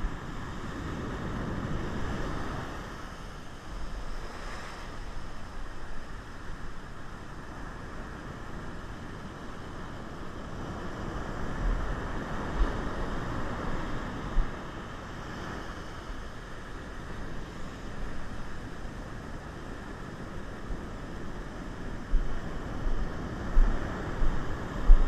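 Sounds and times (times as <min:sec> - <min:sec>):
ocean surf washing: 0:00.0 - 0:25.0
wind buffeting microphone: 0:07.7 - 0:25.0.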